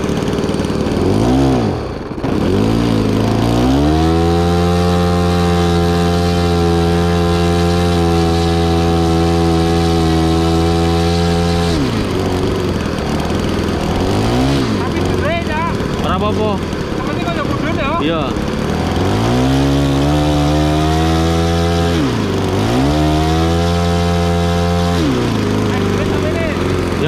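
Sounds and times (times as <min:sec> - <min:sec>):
model plane engine revving: 0:00.0 - 0:27.0.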